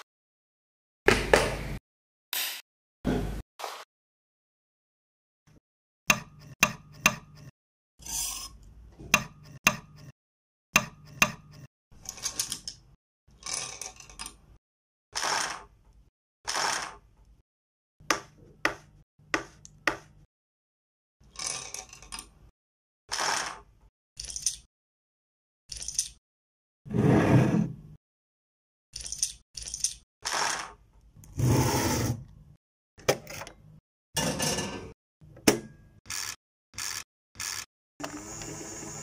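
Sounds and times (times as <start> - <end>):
knife chopping on wooden board: 18.0 - 20.2.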